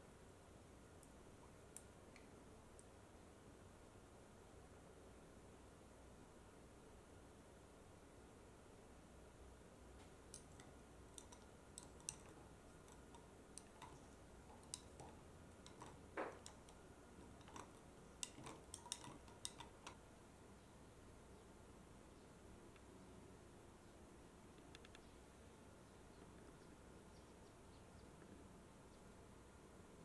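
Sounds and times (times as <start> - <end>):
metal spoon clinking in glass: 10.4 - 20.0.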